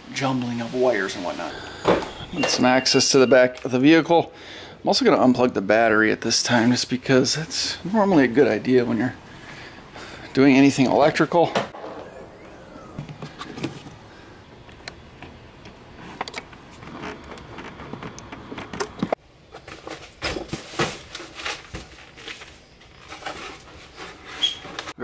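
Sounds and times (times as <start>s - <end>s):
hands working at car battery: 12.8s - 21.9s.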